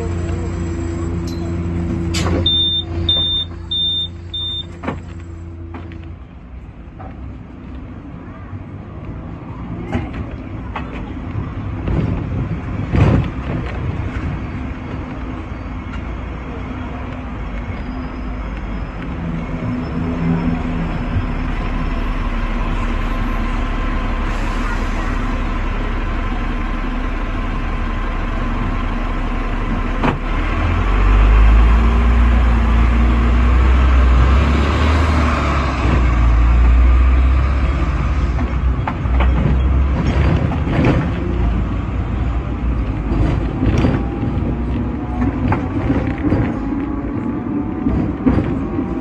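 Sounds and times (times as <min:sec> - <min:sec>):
tram motor and wheels on rail: 0:00.0 - 0:49.0
wheels and body clicking and rattling: 0:38.3 - 0:49.0.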